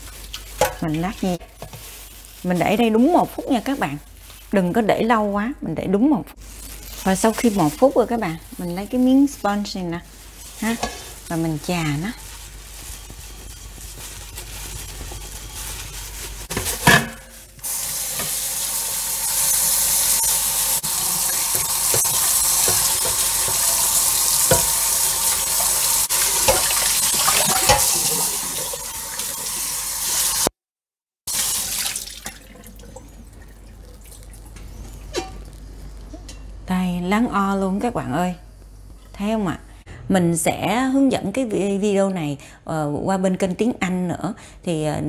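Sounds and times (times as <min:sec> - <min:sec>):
sponge rubbing pot: 0:06.5 - 0:18.6, 0:19.3 - 0:30.3
tap water splashing on pot: 0:21.3 - 0:29.3, 0:31.3 - 0:33.2.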